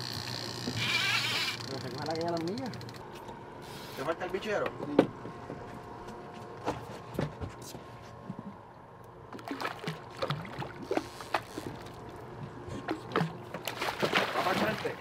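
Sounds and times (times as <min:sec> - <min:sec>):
outboard engine humming: 0:00.0 - 0:04.0, 0:08.2 - 0:15.0
water splashing against boat hull: 0:09.4 - 0:12.2, 0:12.8 - 0:15.0
fish thrashing at surface: 0:13.1 - 0:15.0.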